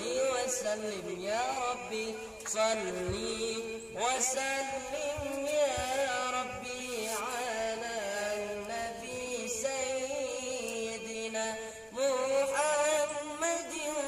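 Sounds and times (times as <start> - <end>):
man singing devotional song: 0.0 - 14.0.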